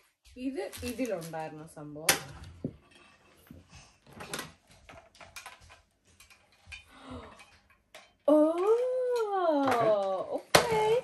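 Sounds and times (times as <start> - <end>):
plastic parts clicking and tapping: 4.2 - 11.0.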